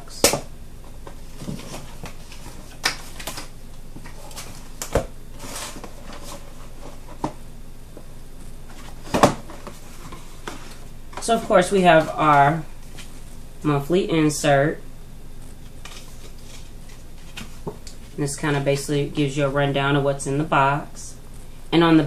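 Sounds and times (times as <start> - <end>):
cardboard scraping: 1.1 - 3.4, 4.0 - 7.4, 15.8 - 17.8.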